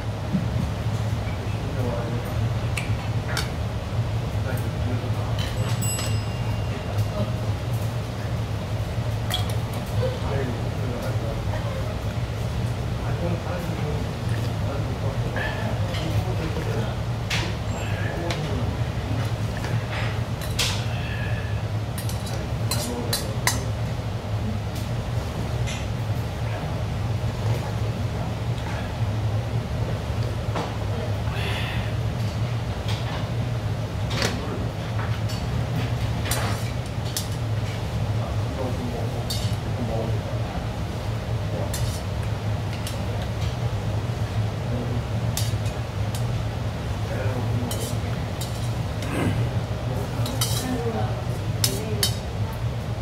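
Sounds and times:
steady low hum: 0.0s - 53.0s
metal chopsticks clinking on bowl: 5.4s - 7.1s, 47.7s - 48.7s, 50.2s - 50.8s, 51.6s - 52.2s.

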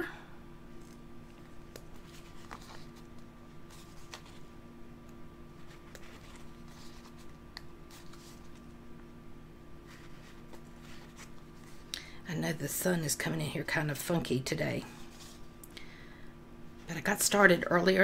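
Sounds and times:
steady low hum: 0.0s - 18.0s
paper rustling: 0.8s - 4.5s, 5.6s - 8.7s, 9.8s - 11.9s, 15.0s - 15.5s.

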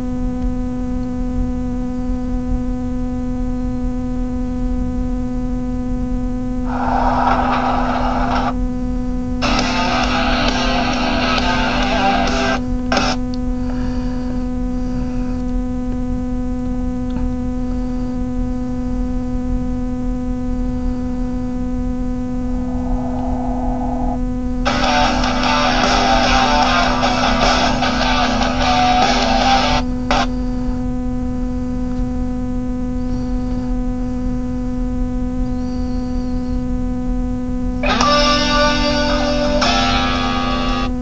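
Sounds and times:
electrical mains hum: 0.0s - 41.0s
rock music with distorted guitar: 6.7s - 8.6s, 9.4s - 14.0s, 24.6s - 30.4s, 37.8s - 41.0s.

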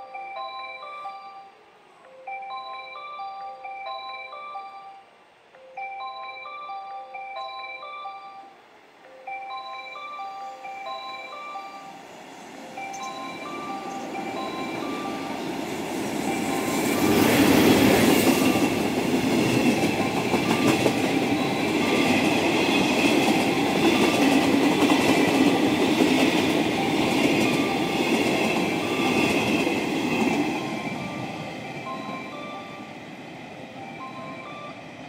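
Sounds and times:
train wheels rumbling on rails: 12.6s - 35.0s.

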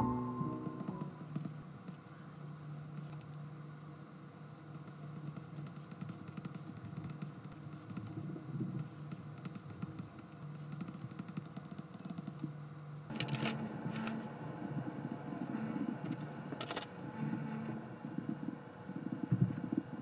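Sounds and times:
stylus tapping on glass screen: 0.0s - 1.2s.

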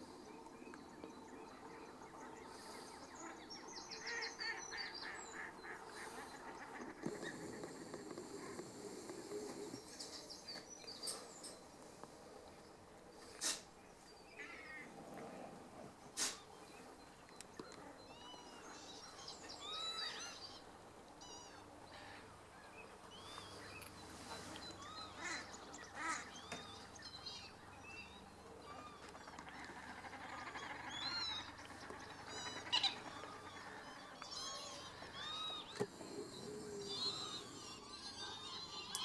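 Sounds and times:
gulls and lapwings calling: 28.6s - 39.0s.

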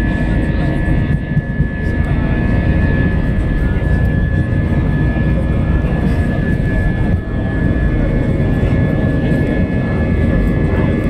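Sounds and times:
jet engine high whine: 0.0s - 11.0s
jet engine roar in cabin: 0.0s - 11.0s.

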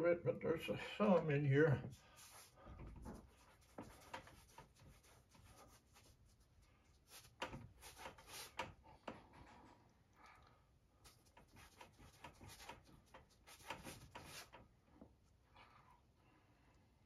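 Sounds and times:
gloved hand rubbing canvas: 1.9s - 8.8s, 11.1s - 14.6s.

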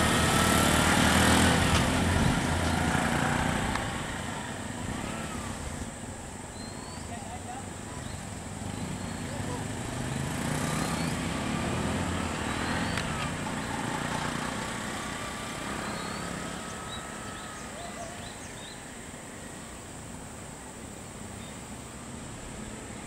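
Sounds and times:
outdoor background hiss: 0.0s - 23.0s
vehicle engines idling: 0.0s - 23.0s
bird chirping: 6.4s - 19.9s.

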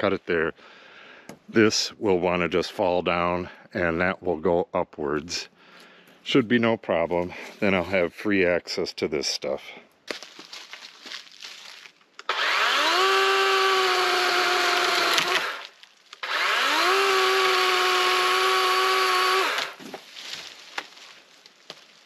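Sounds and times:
electric chainsaw whine: 12.2s - 19.8s.

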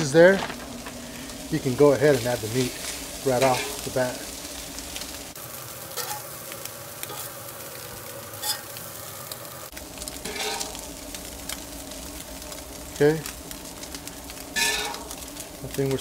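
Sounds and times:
meat sizzling on a griddle: 0.0s - 16.0s
metal spatula scraping griddle: 2.2s - 4.1s, 5.9s - 6.4s, 7.0s - 7.4s, 8.3s - 8.8s, 10.2s - 10.8s, 14.5s - 15.2s.

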